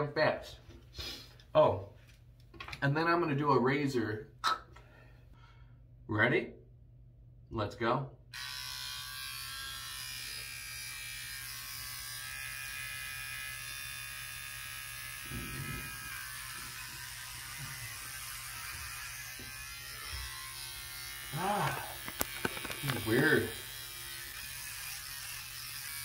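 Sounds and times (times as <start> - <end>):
electric hair clippers buzzing: 8.3 - 26.0.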